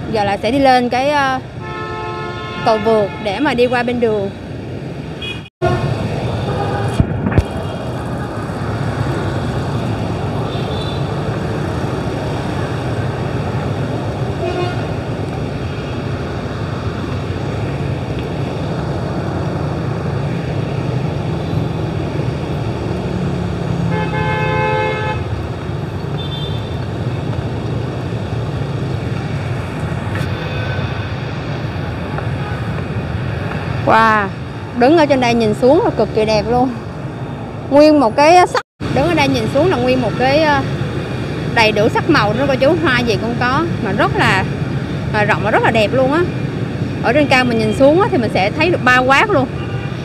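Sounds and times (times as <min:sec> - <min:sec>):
road traffic noise: 0:00.0 - 0:50.0
vehicle horn honking: 0:01.6 - 0:03.4, 0:05.2 - 0:07.0, 0:23.9 - 0:25.3.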